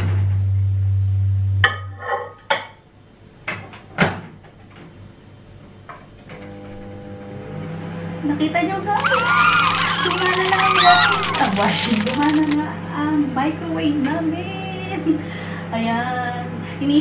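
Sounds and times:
microwave oven humming: 6.2s - 8.2s, 9.0s - 12.6s.

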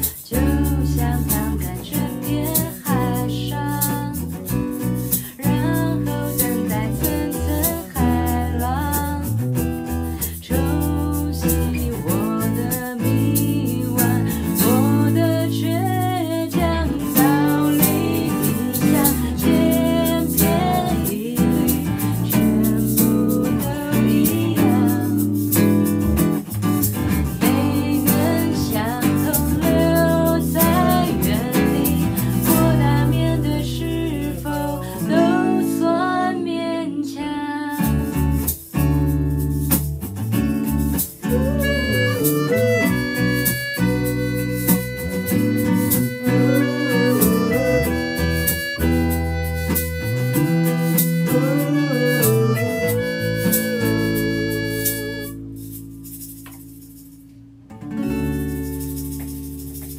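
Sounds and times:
woman singing: 0.0s - 25.6s, 27.3s - 38.2s, 41.2s - 44.4s, 45.3s - 49.3s, 50.6s - 55.4s
acoustic guitar: 0.0s - 59.9s
electric bass: 0.0s - 59.9s.

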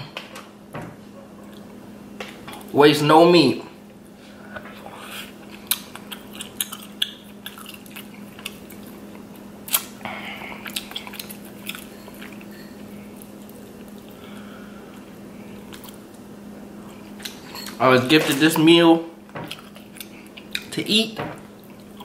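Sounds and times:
steady low hum: 0.0s - 22.0s
chewing: 1.4s - 1.8s, 4.5s - 16.2s, 19.5s - 20.7s.

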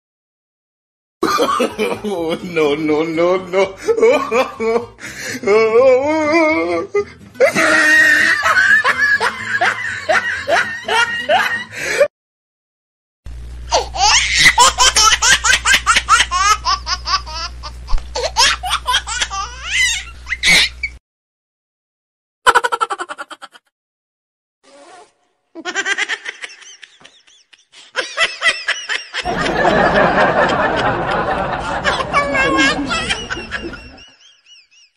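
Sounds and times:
people laughing hard: 1.2s - 12.1s, 14.0s - 17.6s, 25.6s - 34.9s.

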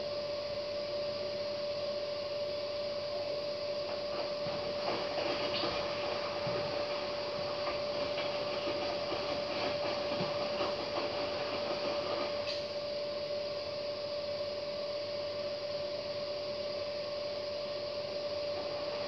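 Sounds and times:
washing machine drum turning: 3.8s - 12.7s
laundry tumbling with light knocks: 3.9s - 12.4s.

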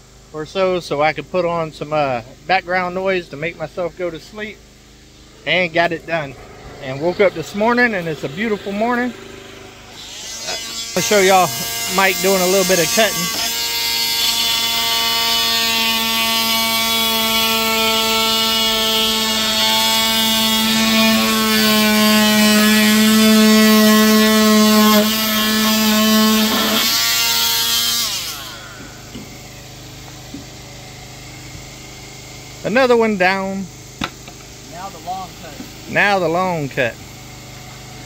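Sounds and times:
motor winding down: 3.6s - 38.0s
power tool cutting drywall: 5.5s - 33.6s.

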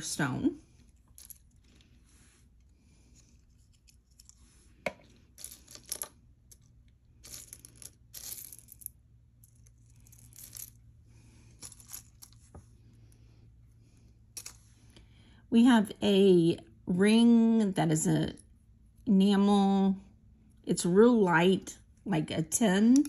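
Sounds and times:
rustling and scraping: 0.6s - 13.2s
jewelry clinking: 0.8s - 1.8s, 3.2s - 12.5s, 14.3s - 14.7s.

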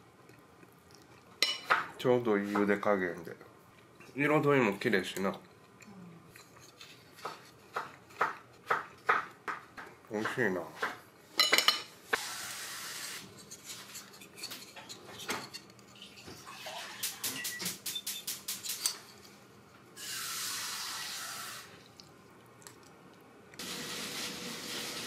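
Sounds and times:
soft wet hiss of eating: 20.0s - 22.9s.

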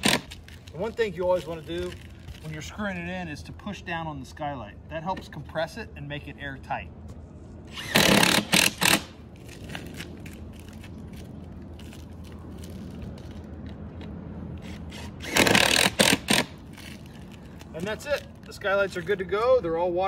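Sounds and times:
power drill driving screws: 0.0s - 0.3s, 7.7s - 9.1s, 14.6s - 16.5s.

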